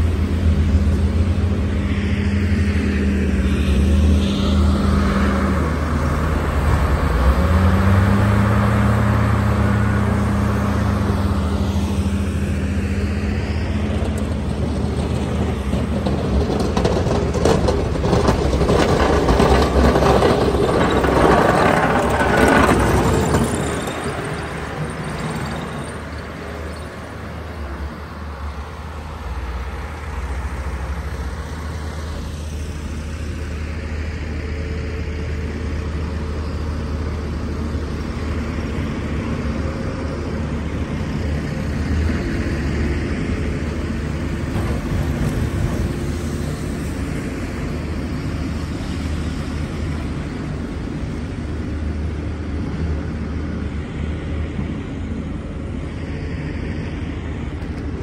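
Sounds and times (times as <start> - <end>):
cars passing on wet street: 0.0 - 58.0
diesel engines droning: 0.0 - 58.0.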